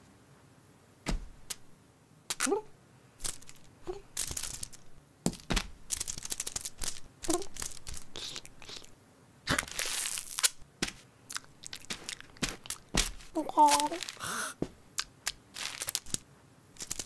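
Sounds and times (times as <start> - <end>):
sticky tape crackling and tearing: 2.3 - 2.6, 3.2 - 8.9, 9.5 - 14.3, 15.0 - 16.2, 16.8 - 17.0.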